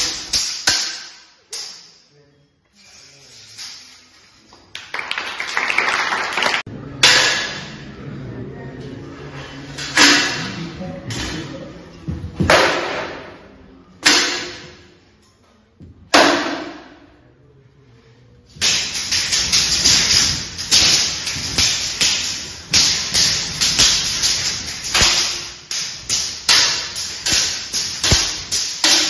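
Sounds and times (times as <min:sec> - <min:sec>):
blades clashing on shields: 0:18.6 - 0:29.0.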